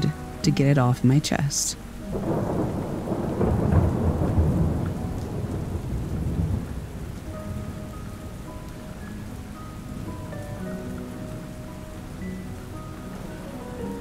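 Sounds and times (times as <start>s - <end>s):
steady rain hiss: 0.0s - 14.0s
rolling thunder: 2.0s - 11.8s.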